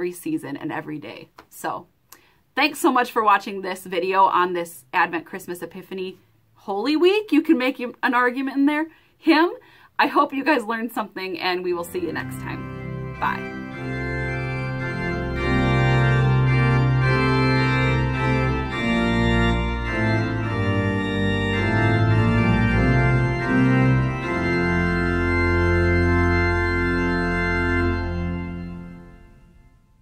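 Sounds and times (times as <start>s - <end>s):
organ music: 11.7s - 30.0s.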